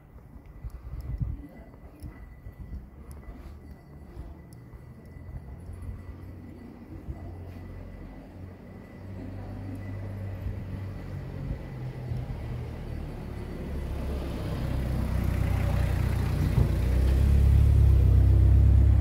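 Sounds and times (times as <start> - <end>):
vehicle approaching: 1.8 - 19.0.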